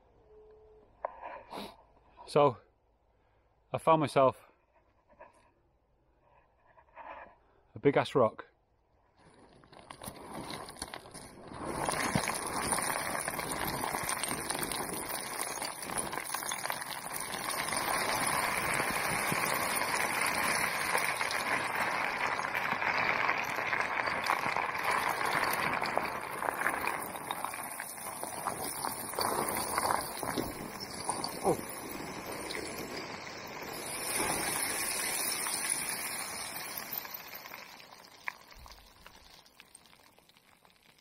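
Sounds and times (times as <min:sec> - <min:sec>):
small stone clicks: 0:09.2 - 0:41.0.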